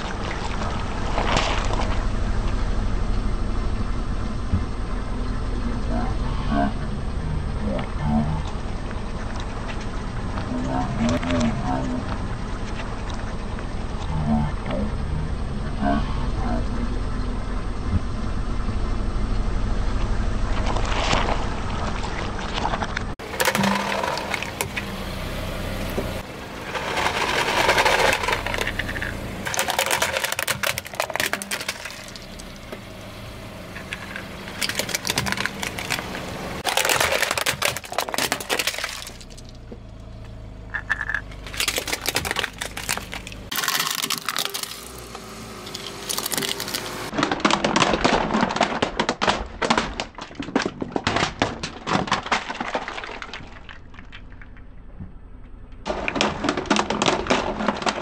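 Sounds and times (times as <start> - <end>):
plastic toys cracking under tyre: 26.8 - 32.8, 33.8 - 39.6, 40.7 - 58.0.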